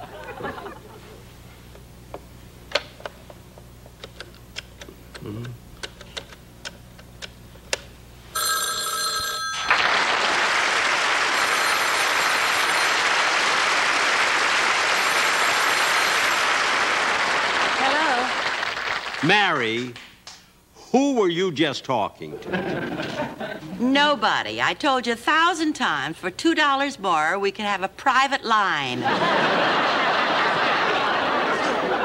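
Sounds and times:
telephone bell ringing: 8.3s - 10.0s, 11.2s - 13.6s, 15.0s - 16.5s
audience applause: 9.6s - 20.0s.

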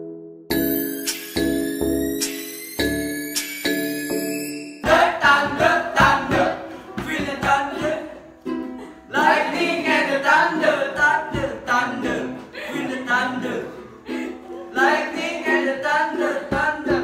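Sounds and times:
young men singing together: 4.8s - 8.2s, 9.1s - 17.0s.

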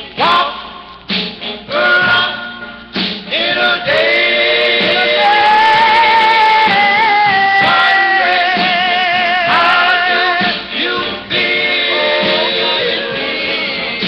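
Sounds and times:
doo-wop vocal group singing: 0.0s - 0.8s, 1.4s - 14.0s.

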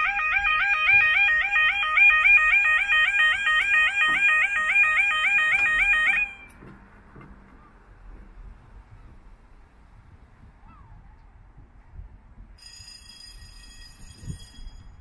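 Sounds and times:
warbling two-tone crossing alarm: 0.0s - 6.5s, 12.6s - 15.0s.

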